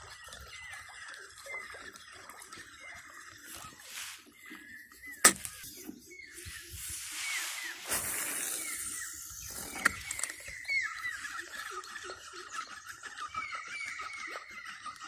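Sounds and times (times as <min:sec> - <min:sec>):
hiss: 0:06.7 - 0:09.2.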